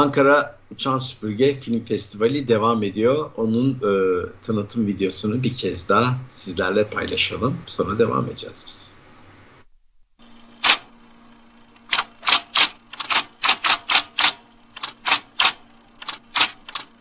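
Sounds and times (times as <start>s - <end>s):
typewriter key strikes: 11.9s - 17.0s.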